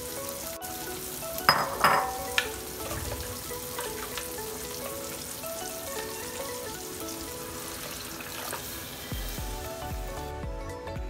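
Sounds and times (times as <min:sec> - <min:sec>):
food sizzling: 0:00.0 - 0:10.4
spoon clink: 0:01.5 - 0:02.6.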